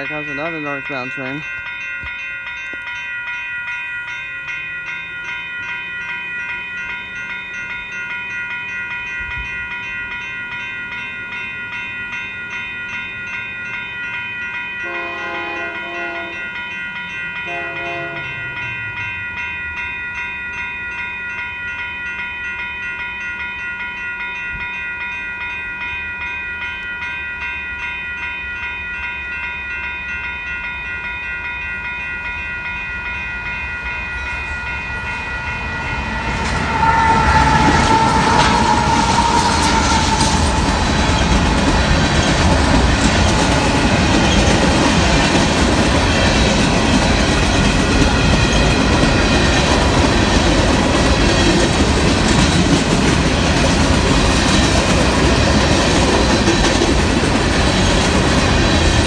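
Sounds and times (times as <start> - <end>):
low rumble of train: 0.0 - 59.0
railroad crossing bell ringing: 0.0 - 59.0
locomotive horn blasts: 14.8 - 16.5, 17.4 - 18.4, 36.6 - 41.0.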